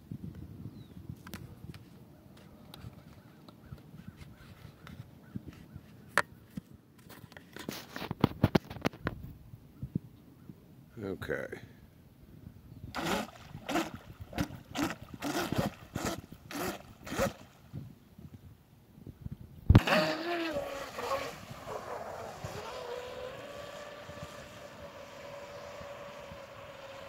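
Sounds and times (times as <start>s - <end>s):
electric motor throttle blips: 13.0s - 17.4s, 19.8s - 27.0s
electric motor high whine: 19.8s - 27.0s.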